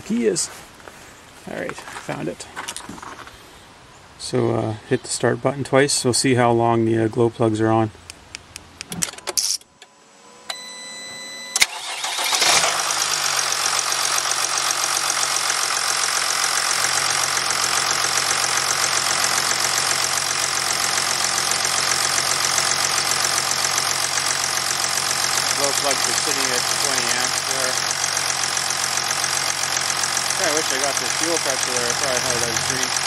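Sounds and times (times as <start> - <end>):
diesel engine idling: 11.7 - 33.0
starter cranking: 22.0 - 33.0.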